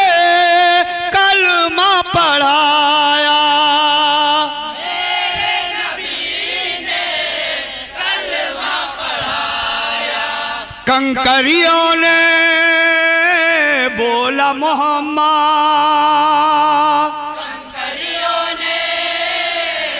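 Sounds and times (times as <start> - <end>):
man singing a long note: 0.0 - 4.7, 10.9 - 17.4
men singing in chorus: 0.0 - 19.9.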